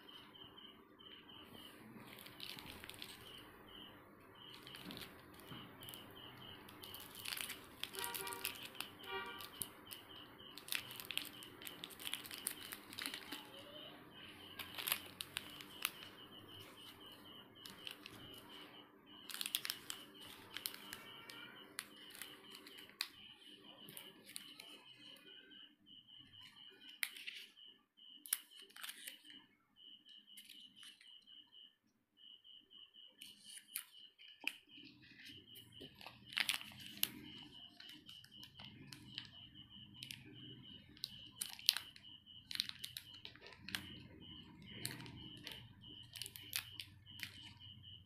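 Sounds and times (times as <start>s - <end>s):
pulsing high chirp: 0.0s - 28.6s, 29.3s - 48.0s
candy wrappers crinkling: 1.6s - 3.5s, 4.4s - 23.2s, 23.8s - 25.1s, 28.2s - 29.3s, 33.2s - 47.6s.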